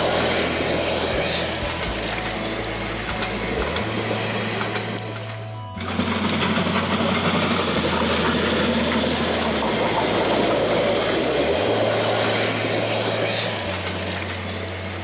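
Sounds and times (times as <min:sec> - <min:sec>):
train wheels on rails: 0:00.0 - 0:15.0
steam locomotive passing: 0:05.8 - 0:14.0.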